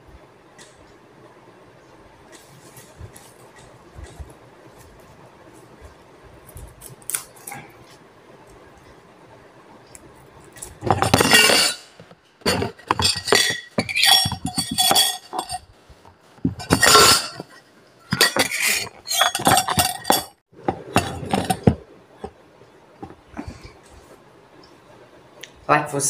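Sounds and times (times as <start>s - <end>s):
objects clinking and rattling: 10.6s - 15.6s, 16.4s - 21.8s.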